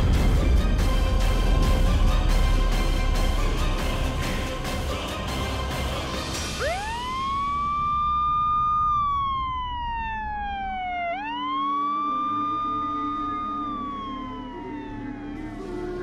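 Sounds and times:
police siren wailing: 0:06.4 - 0:16.0.

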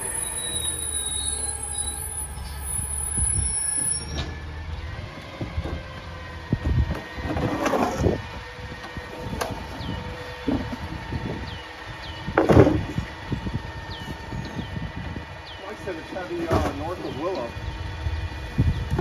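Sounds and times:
truck engine hum: 0:00.0 - 0:07.4, 0:08.0 - 0:19.0
hydraulic packer squealing whine: 0:00.0 - 0:19.0.

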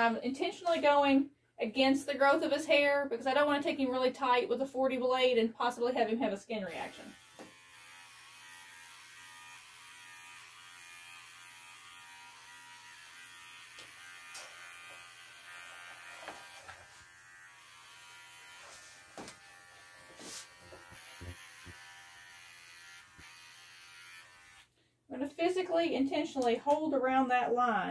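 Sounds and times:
pet clipper running: 0:06.7 - 0:24.7.

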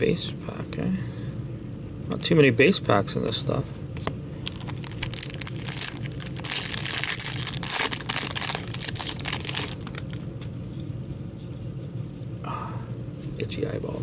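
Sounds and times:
foil wrapper crinkling: 0:04.4 - 0:10.2.

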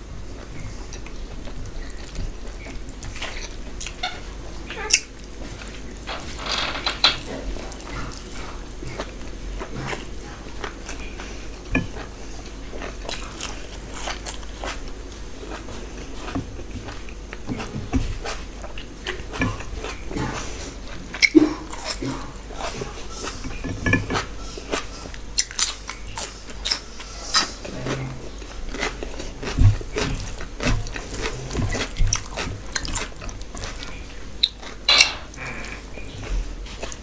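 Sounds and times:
person chewing food: 0:00.0 - 0:37.0.

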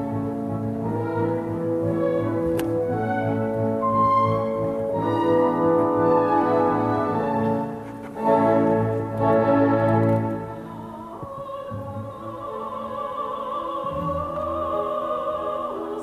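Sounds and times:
orchestra playing chords: 0:00.0 - 0:11.0.

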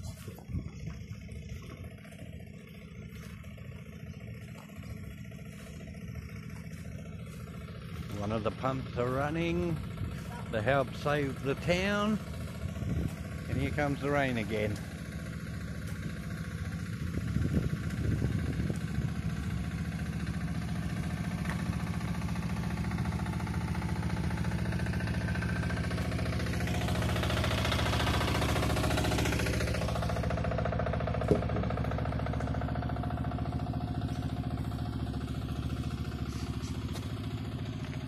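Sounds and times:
flood pump engine running: 0:00.0 - 0:38.0.

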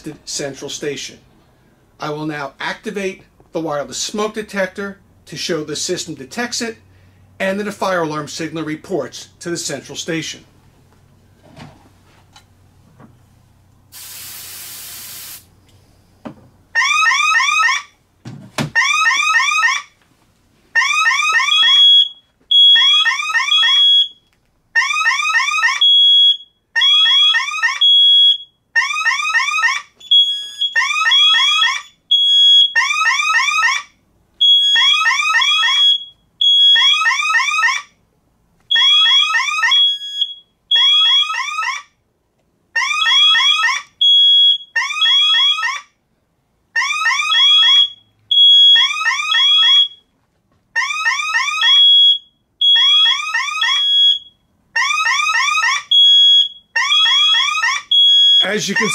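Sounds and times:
fire alarm siren sweeps: 0:16.7 - 0:18.0, 0:18.8 - 0:20.0, 0:20.7 - 0:38.0, 0:38.7 - 0:42.0, 0:42.8 - 0:45.9, 0:46.7 - 0:50.1, 0:50.8 - 0:58.9.

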